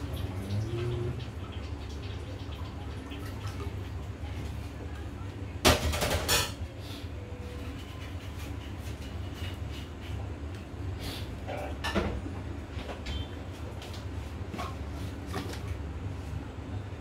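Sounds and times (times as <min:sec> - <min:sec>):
low rumble from pot on stove: 0:00.0 - 0:17.0
kitchen utensils clattering: 0:05.6 - 0:06.6, 0:11.5 - 0:12.2.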